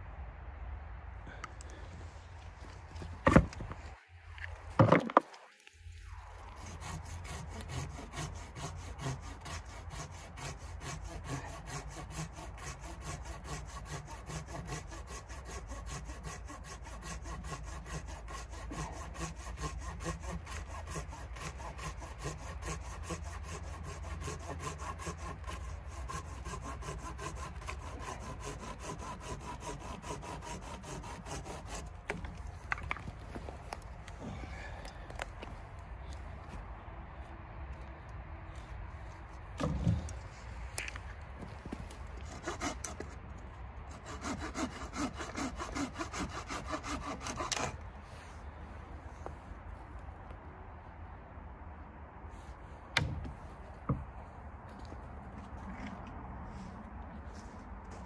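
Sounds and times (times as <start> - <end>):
hand saw cutting wood: 6.3 - 34.6, 40.8 - 43.3, 43.9 - 48.3.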